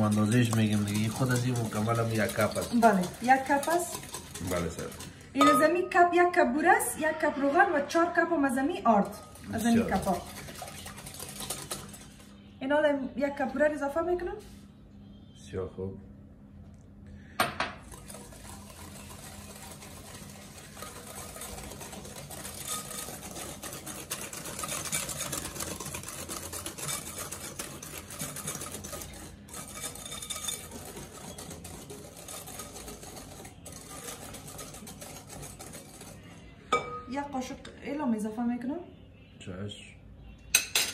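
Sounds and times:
whisk scraping in glass bowl: 0.0s - 5.8s, 7.0s - 12.5s, 17.8s - 36.5s.

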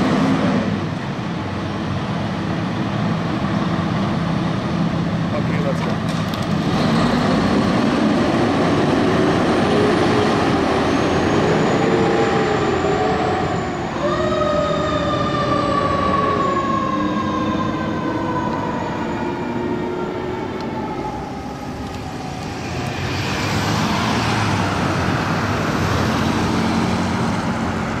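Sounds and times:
diesel engine pulling away: 0.0s - 28.0s
road noise rush: 0.0s - 28.0s
fire engine siren: 6.8s - 28.0s.

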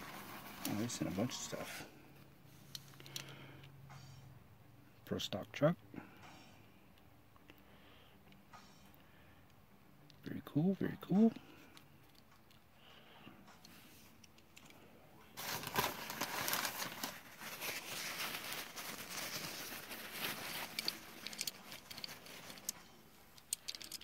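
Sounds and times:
packing paper crinkling: 15.4s - 22.8s.

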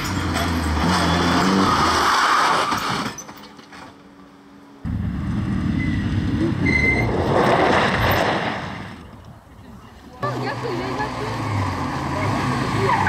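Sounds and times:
loud rally car engine: 0.0s - 3.2s, 4.8s - 9.0s, 10.2s - 13.0s.

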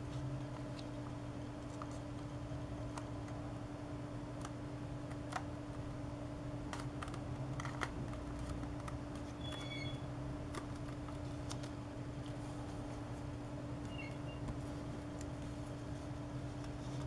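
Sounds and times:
paper being folded and creased: 6.7s - 13.3s, 14.4s - 17.0s.

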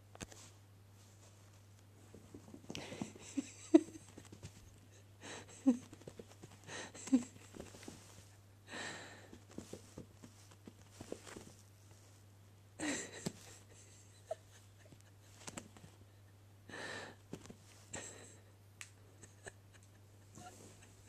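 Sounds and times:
kittens scrambling on carpet: 0.2s - 8.4s, 9.0s - 12.3s, 14.9s - 16.1s, 17.2s - 18.1s.

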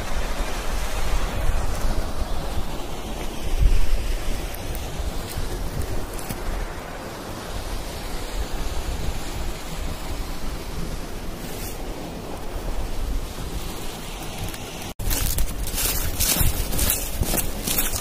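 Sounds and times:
wind rushing over microphone: 0.0s - 18.0s
footsteps crunching on dry leaves: 15.0s - 18.0s.

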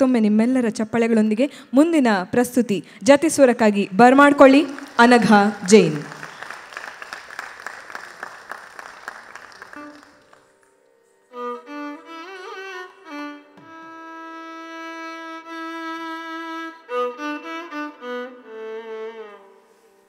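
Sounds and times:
audience applause: 4.2s - 10.5s
violin melody with sliding ornaments: 9.7s - 20.0s.

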